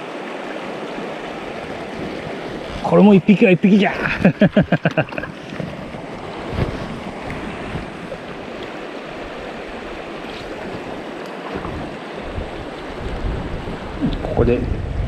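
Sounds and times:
river rushing over rocks: 0.0s - 14.4s
wind buffeting microphone: 5.3s - 15.0s.

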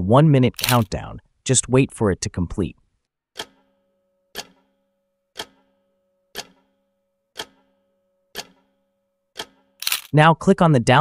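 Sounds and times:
clock ticking: 3.4s - 9.8s.

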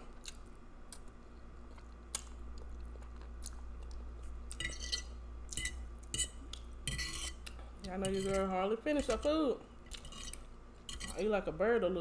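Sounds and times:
chewing spaghetti: 0.1s - 4.6s
metal fork scraping ceramic plate: 4.6s - 7.4s, 8.0s - 11.2s.

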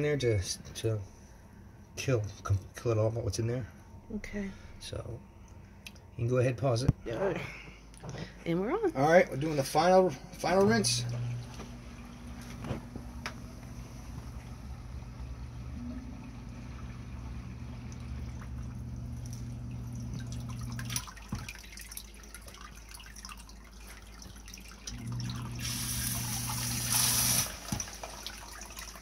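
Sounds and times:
sump pump motor hum: 9.3s - 29.0s
water trickling and splashing: 15.2s - 29.0s
water rushing: 24.7s - 29.0s.

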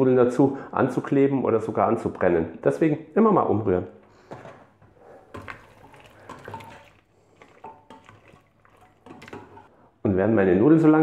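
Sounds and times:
wet stirring in a pot: 4.7s - 9.8s.

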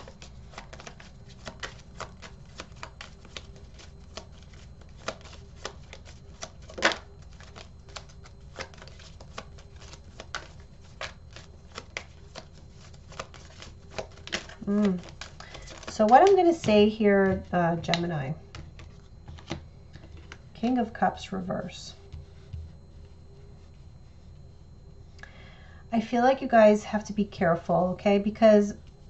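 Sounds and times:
cards being shuffled: 0.0s - 20.4s.

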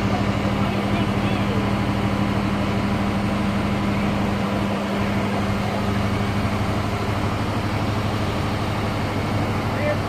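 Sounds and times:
vehicle engine idling: 0.0s - 10.0s.

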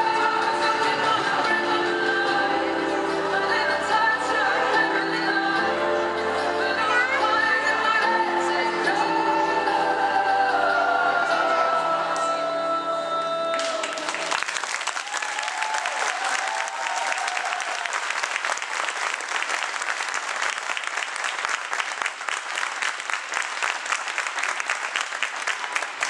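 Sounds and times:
music: 0.0s - 14.5s
audience applauding: 13.5s - 26.0s.

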